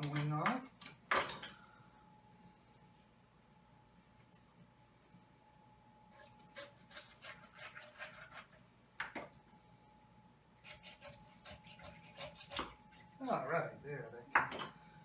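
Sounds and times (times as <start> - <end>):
faint steady hum: 0.0 - 15.0
knife cutting raw meat: 6.1 - 8.6, 10.6 - 13.0.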